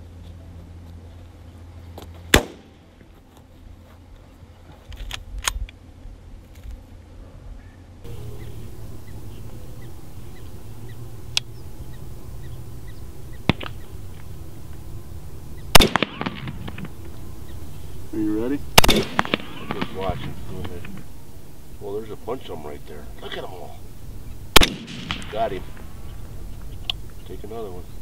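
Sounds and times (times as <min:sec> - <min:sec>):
sharp cracks: 0:02.3 - 0:02.8, 0:08.1 - 0:28.0
wind rumbling on microphone: 0:07.4 - 0:28.0.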